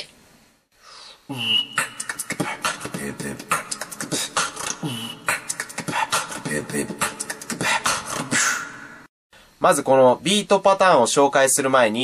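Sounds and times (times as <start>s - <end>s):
mouth-made whistle: 1.3s - 2.2s
human beatbox beat: 1.3s - 8.9s.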